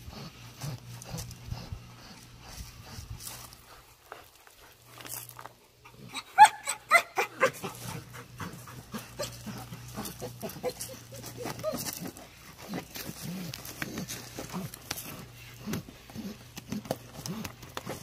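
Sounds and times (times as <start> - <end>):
dog yelping: 6.0 - 12.2.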